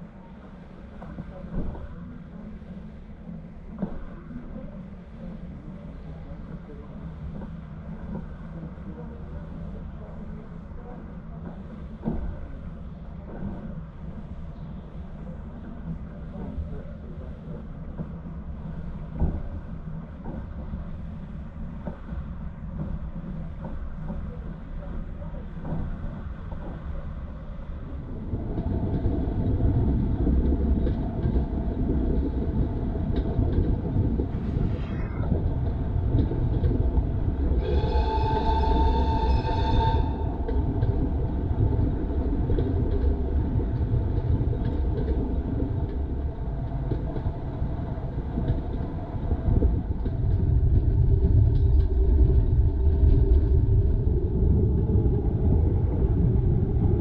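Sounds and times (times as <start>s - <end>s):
train rumbling: 0.0s - 57.0s
high train whistle: 37.5s - 40.5s.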